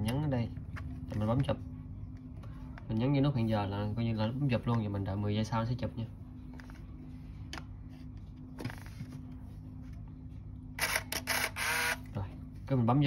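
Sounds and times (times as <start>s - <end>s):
faint low hum: 0.0s - 13.0s
camera shutter release: 10.8s - 12.0s
camera motor whirring: 10.8s - 12.1s.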